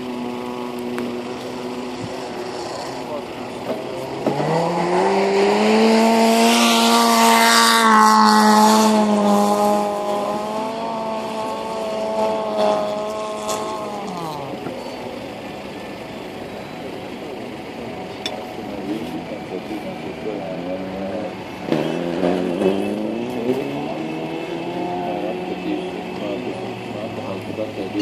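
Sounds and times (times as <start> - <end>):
car engine revving high: 0.0 - 28.0.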